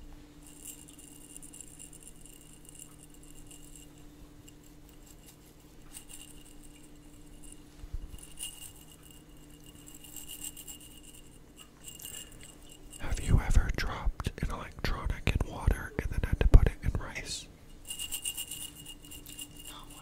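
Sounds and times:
faint low hum: 0.0 - 20.0
rattling inside glass jar: 0.4 - 13.5, 17.7 - 20.0.

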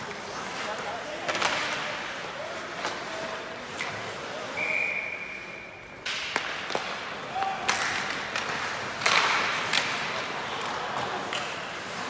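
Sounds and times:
stick hitting puck: 1.2 - 2.0, 6.0 - 12.0.

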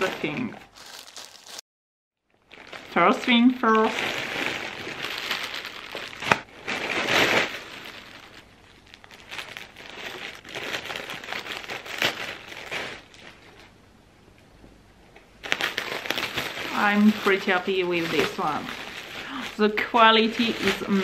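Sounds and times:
plastic packaging crinkling: 0.0 - 1.6, 2.3 - 13.8, 15.4 - 21.0.

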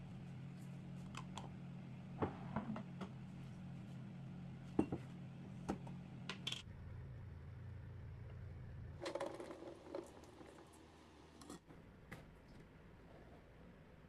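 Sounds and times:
steady low hum: 0.0 - 9.0.

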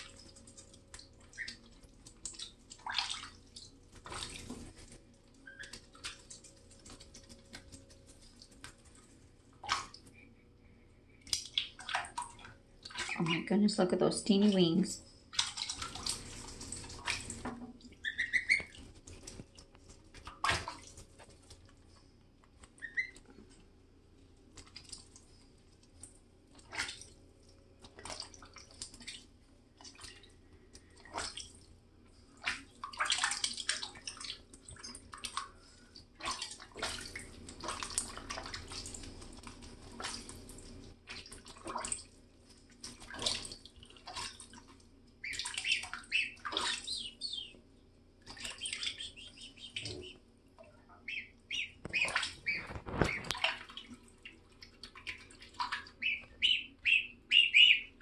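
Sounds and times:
goslings splashing in water: 0.0 - 10.3, 11.1 - 21.8, 22.6 - 23.7, 24.3 - 58.0
gosling peeps: 17.9 - 18.9, 22.7 - 23.3, 45.2 - 47.6, 48.3 - 50.2, 50.9 - 53.6, 55.1 - 58.0.

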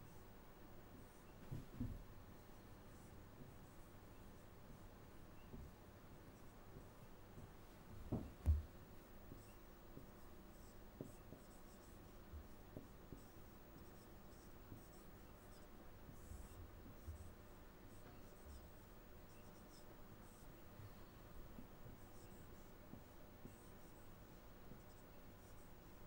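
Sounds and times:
marker squeaking on whiteboard: 9.3 - 11.9, 18.0 - 20.4.

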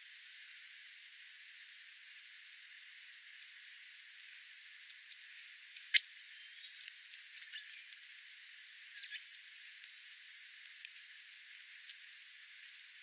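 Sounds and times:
bird bill clicking on seeds: 4.8 - 13.0
faint high bird chirps: 5.6 - 9.4, 12.4 - 13.0.

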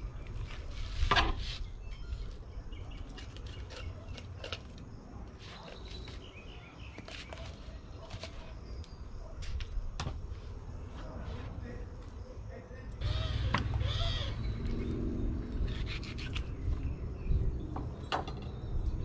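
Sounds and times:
birds chirping faintly: 0.0 - 9.8
low wind rumble: 13.0 - 19.0.

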